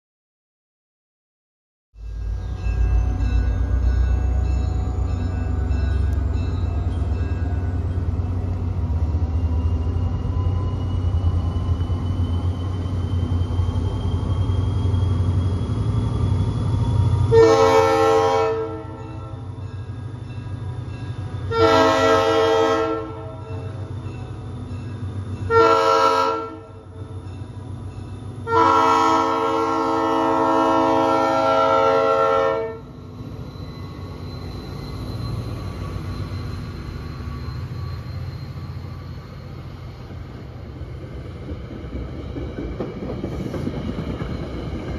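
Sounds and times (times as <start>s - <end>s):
train rumbling: 2.0s - 44.9s
locomotive air horn blasts: 17.3s - 19.0s, 21.5s - 23.4s, 25.5s - 26.8s, 28.4s - 32.9s.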